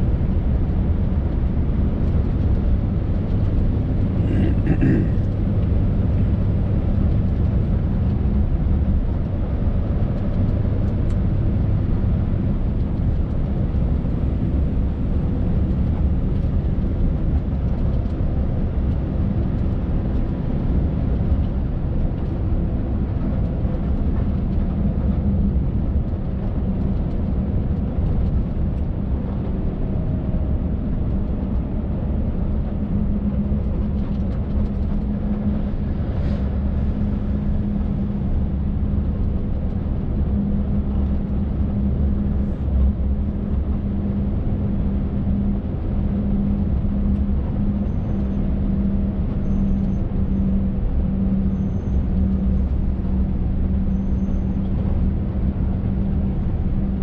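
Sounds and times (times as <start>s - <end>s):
road noise: 0.0s - 57.0s.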